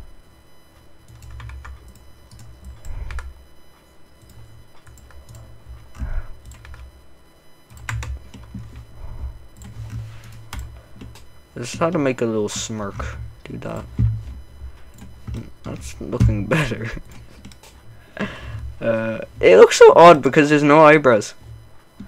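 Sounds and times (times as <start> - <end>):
keyboard typing: 1.0 - 6.9, 7.6 - 17.8.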